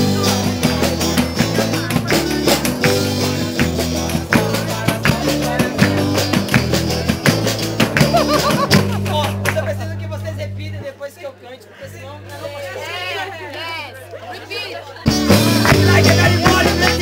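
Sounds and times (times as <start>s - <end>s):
live band playing: 0.0s - 10.8s, 15.0s - 17.0s
bass guitar notes: 0.0s - 10.9s, 15.1s - 17.0s.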